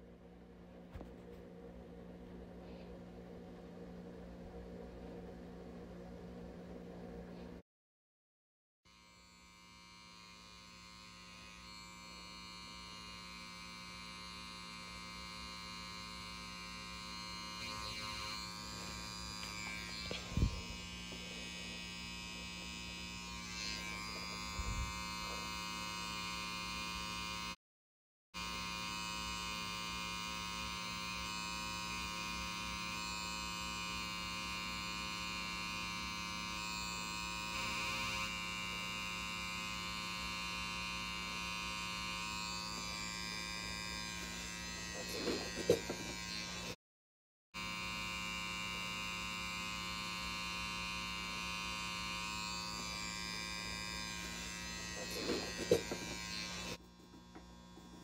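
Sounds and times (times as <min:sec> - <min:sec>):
tattoo machine buzzing: 0:08.9 - 0:27.6, 0:28.4 - 0:46.8, 0:47.6 - 0:58.0.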